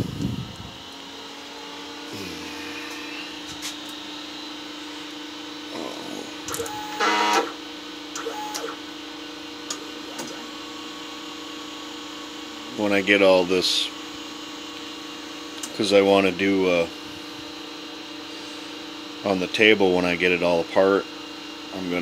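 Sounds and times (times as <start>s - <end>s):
machine hum: 0.0s - 19.4s.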